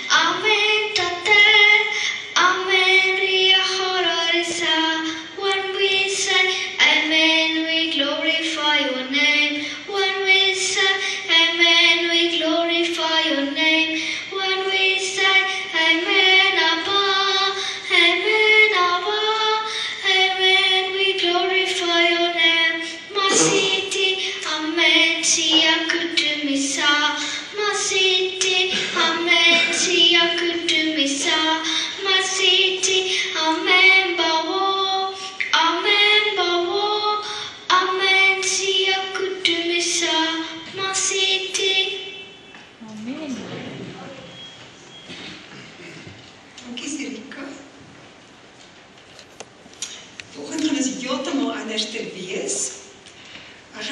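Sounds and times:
girl singing into microphone: 0.0s - 42.5s.

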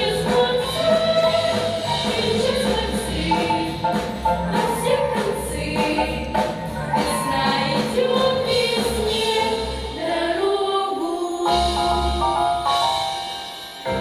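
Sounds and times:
pulsing bass: 0.0s - 9.8s
girls singing a pop song: 0.0s - 11.8s
musical accompaniment: 0.0s - 14.0s.

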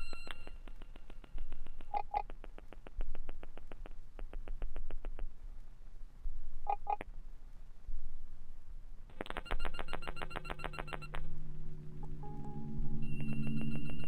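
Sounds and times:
short paired blips: 0.0s - 5.3s, 9.1s - 14.0s
glitchy electronic drone music: 9.2s - 14.0s.

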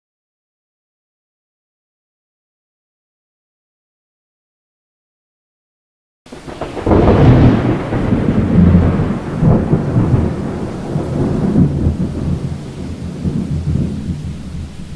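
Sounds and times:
rain: 6.3s - 14.9s
rolling thunder: 6.3s - 14.9s.

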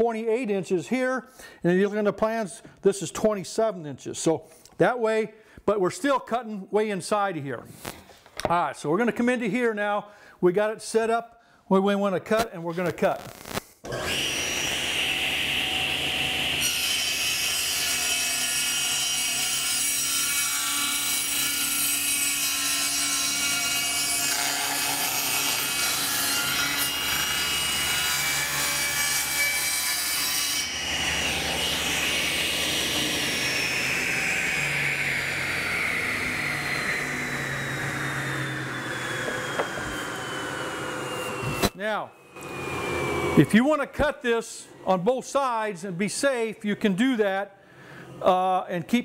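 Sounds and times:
table saw cutting wood: 13.8s - 44.0s.

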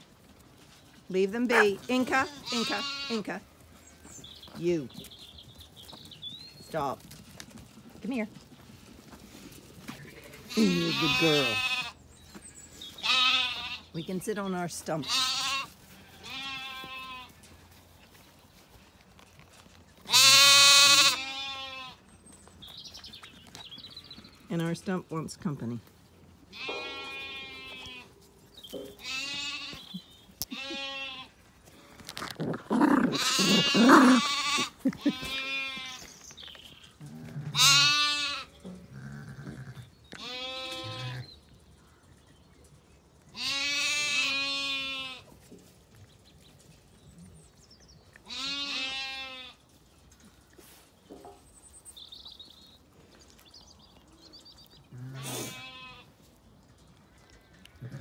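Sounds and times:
sheep bleating: 1.5s - 3.4s, 10.1s - 12.0s, 13.0s - 13.9s, 15.0s - 17.4s, 20.1s - 22.0s, 26.5s - 28.1s, 29.0s - 32.0s, 33.0s - 36.1s, 37.1s - 41.2s, 43.4s - 45.2s, 48.3s - 49.6s, 54.9s - 56.1s.

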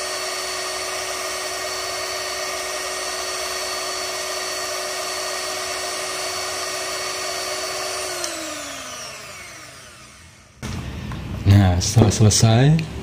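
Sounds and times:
electric hand mixer whining: 0.0s - 11.5s
mixer switch click: 8.1s - 8.5s.

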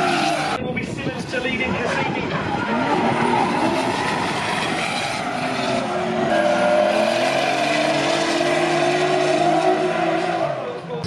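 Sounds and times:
car engines revving high: 0.0s - 0.6s, 2.0s - 11.0s
tyres squealing on tarmac: 0.0s - 0.6s, 2.7s - 11.0s.

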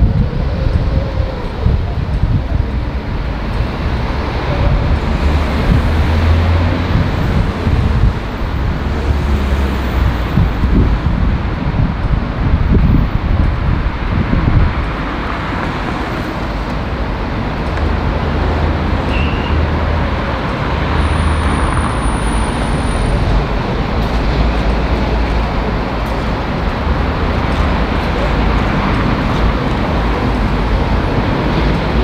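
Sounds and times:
street traffic rumble: 0.0s - 32.0s
thin high whistle: 19.1s - 19.6s.

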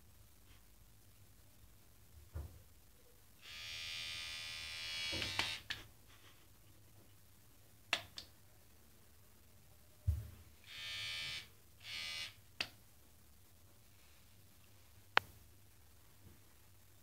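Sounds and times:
electric shaver buzzing: 3.4s - 5.7s, 10.6s - 12.4s.

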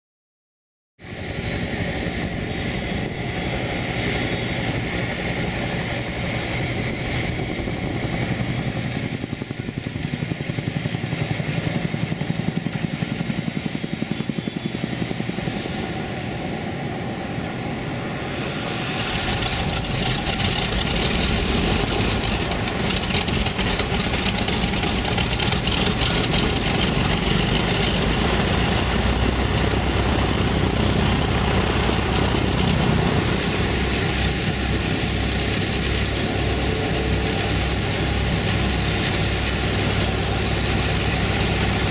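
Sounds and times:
propeller engine drone: 1.0s - 41.9s.

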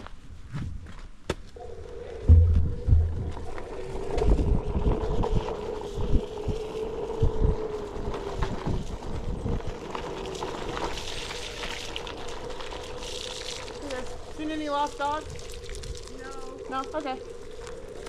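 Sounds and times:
wind buffeting microphone: 2.2s - 9.8s.

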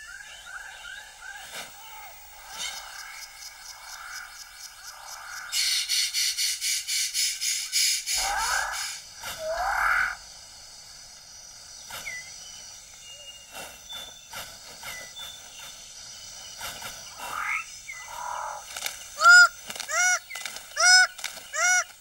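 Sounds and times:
faint insect trill: 0.0s - 22.0s
small bird calls: 0.0s - 22.0s
bird honking calls: 19.2s - 22.0s.

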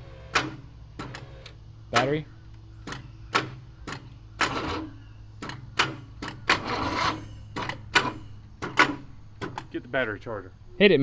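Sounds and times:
starter solenoid clicking: 0.0s - 9.8s.

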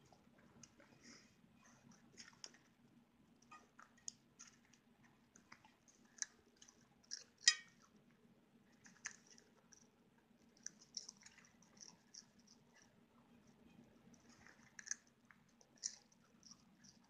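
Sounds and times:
dog chewing popcorn: 0.0s - 17.0s.

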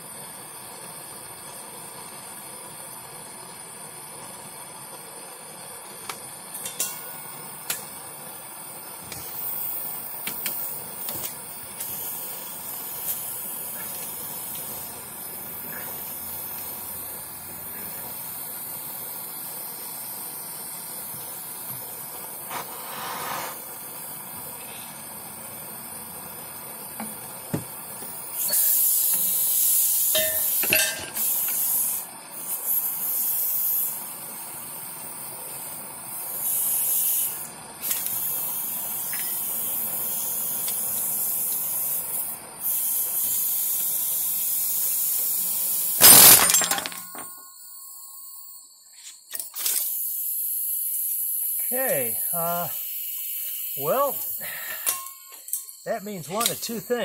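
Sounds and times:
propane torch hissing: 0.0s - 46.3s, 49.6s - 55.2s, 55.8s - 57.0s
higher hiss spurts: 6.8s - 25.9s, 28.2s - 46.7s, 49.8s - 54.9s, 55.8s - 57.0s.

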